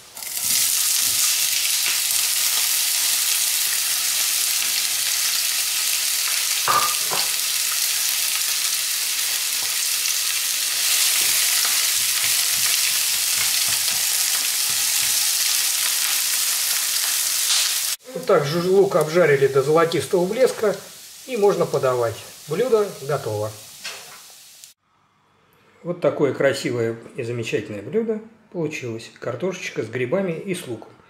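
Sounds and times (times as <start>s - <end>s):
onions sizzling in a frying pan: 0.0s - 24.8s.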